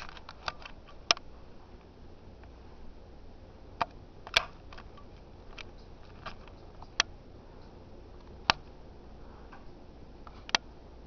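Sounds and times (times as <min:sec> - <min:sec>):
ceiling fan humming: 0:00.0 - 0:11.0
sharp clicks: 0:03.8 - 0:08.8.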